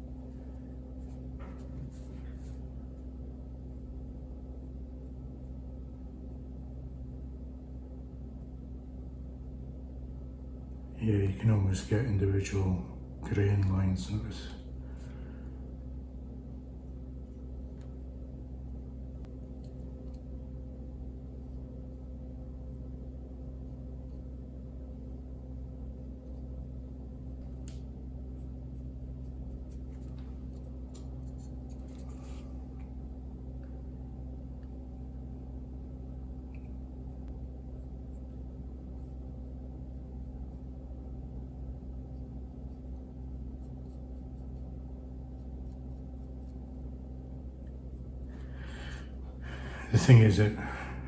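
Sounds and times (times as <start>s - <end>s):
paintbrush scratching: 0.0s - 3.8s, 27.2s - 32.6s, 42.1s - 48.4s
steady low hum: 0.0s - 51.0s.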